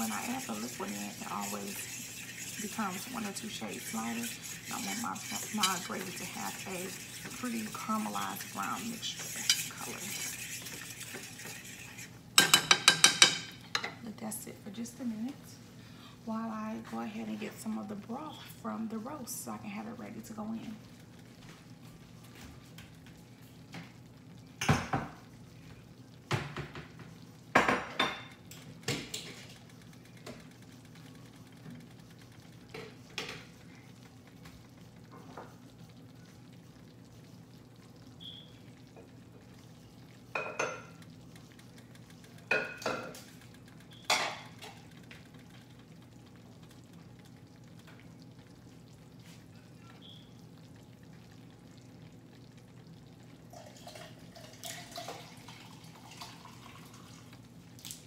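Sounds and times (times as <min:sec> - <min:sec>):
steady low hum: 0:00.0 - 0:22.1
dishes and utensils clinking: 0:11.8 - 0:14.0.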